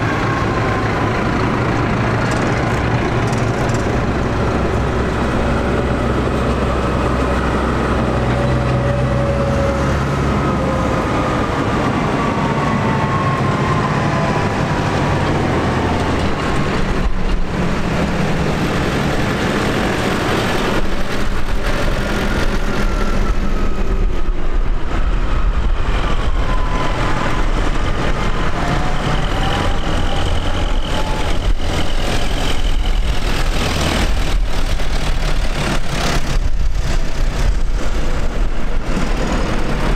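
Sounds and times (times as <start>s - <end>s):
tractor engines running: 0.0s - 39.9s
whining tones sliding in pitch: 22.4s - 34.1s.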